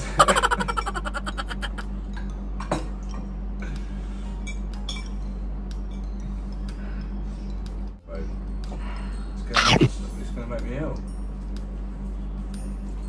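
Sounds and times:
person laughing: 0.0s - 1.8s, 9.6s - 9.9s.

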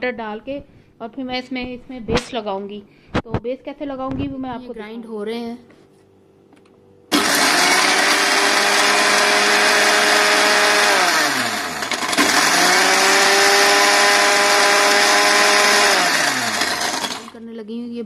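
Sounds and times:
electric mixer grinder motor: 7.1s - 17.4s.

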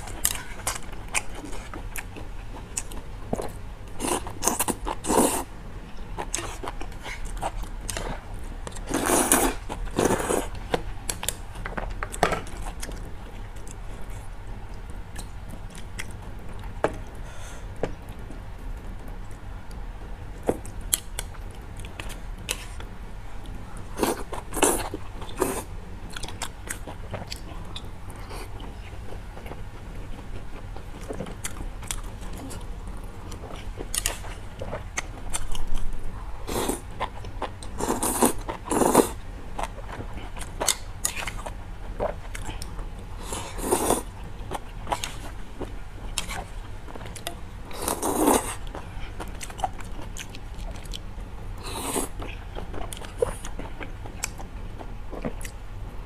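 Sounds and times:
chewing and slurping noodles: 0.1s - 5.5s, 6.2s - 11.4s, 23.4s - 55.6s.

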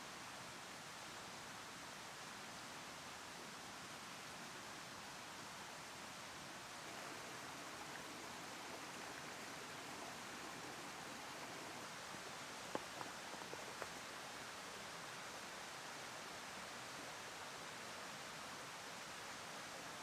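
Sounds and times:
camping gear clicks and taps: 11.4s - 14.0s.

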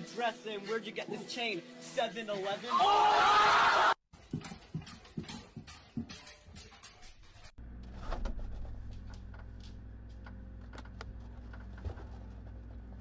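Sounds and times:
refrigerator hum: 7.6s - 13.0s.

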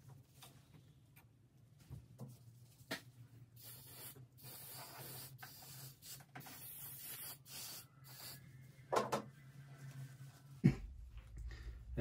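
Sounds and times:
aerosol spray hissing: 3.6s - 8.4s.

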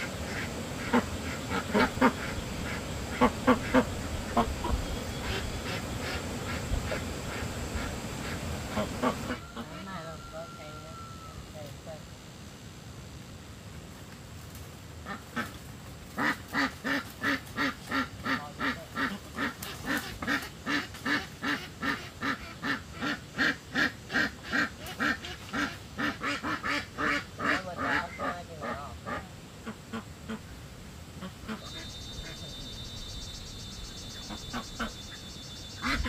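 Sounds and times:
duck quacking: 0.0s - 10.0s, 15.0s - 15.5s, 16.2s - 30.5s, 31.2s - 32.9s, 33.9s - 36.0s.

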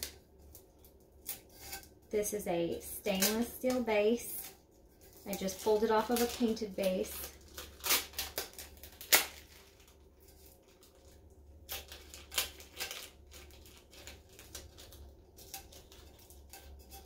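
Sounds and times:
adhesive sheet peeling crackles: 5.1s - 16.9s.

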